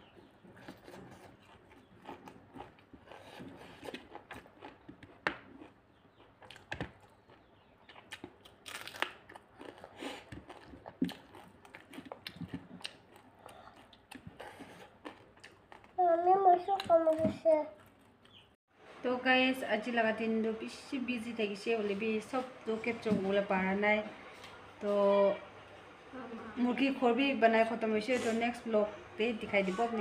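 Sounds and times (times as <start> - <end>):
chewing and lip smacks: 0.6 - 16.0.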